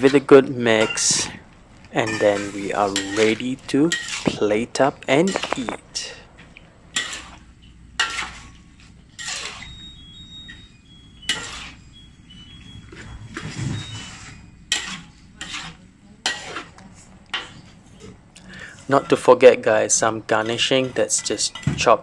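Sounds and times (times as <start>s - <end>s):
metal spatula scraping a wok: 2.0s - 6.2s, 6.9s - 10.6s, 11.2s - 12.5s, 13.3s - 17.7s.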